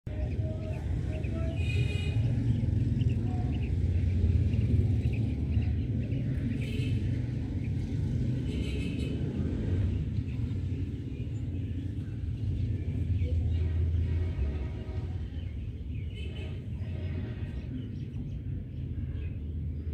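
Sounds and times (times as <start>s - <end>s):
quails chirping: 0.1s - 13.6s
steady low rumble: 0.1s - 19.9s.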